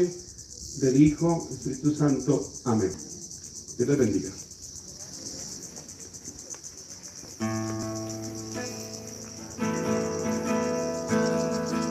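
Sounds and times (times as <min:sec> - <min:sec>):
high-pitched insect chorus: 0:00.0 - 0:11.9
music with sustained chords: 0:07.5 - 0:11.9.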